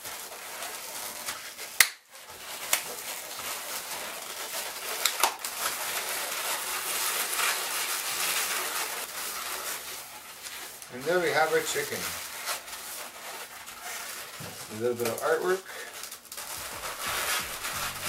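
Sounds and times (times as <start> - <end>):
balloons squeaking and rustling: 0.0 - 18.0
balloon sharp snap: 1.8 - 2.0.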